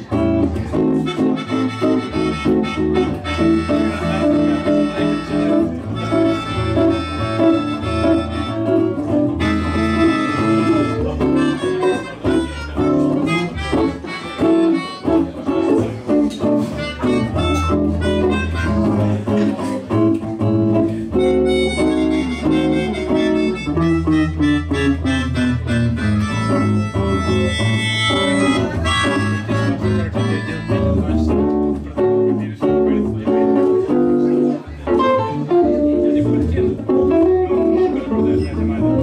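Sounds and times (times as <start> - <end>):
guitar accompaniment: 0.0 - 39.0
melodica melody: 1.1 - 15.4, 21.2 - 31.2.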